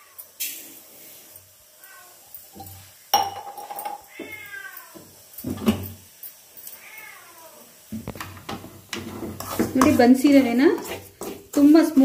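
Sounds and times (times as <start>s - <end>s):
metal kitchenware knock: 3.1s - 4.0s.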